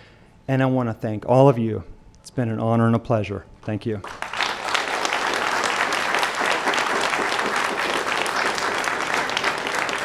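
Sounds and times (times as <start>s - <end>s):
audience applauding: 4.0s - 10.0s.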